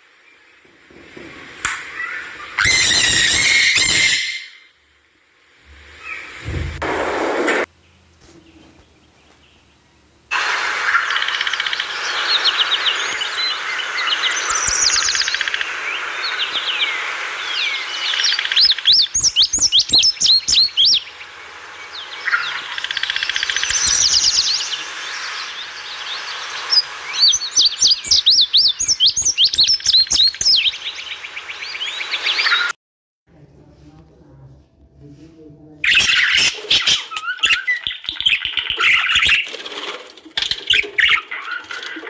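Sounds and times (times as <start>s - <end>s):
songbirds trilling and chirping: 7.8s - 32.7s, 35.9s - 39.8s.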